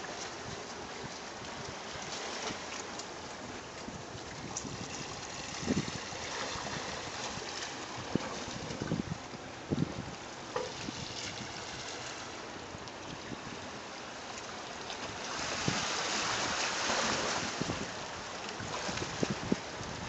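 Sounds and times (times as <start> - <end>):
rush of surf: 3.8 - 12.5, 14.9 - 20.0.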